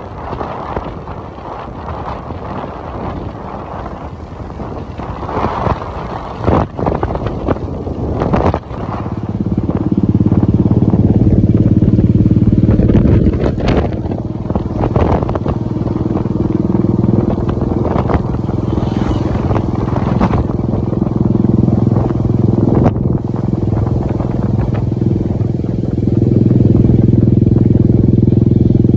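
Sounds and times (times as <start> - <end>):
motorcycle engine running: 0.0 - 28.9
wind buffeting microphone: 0.0 - 28.9.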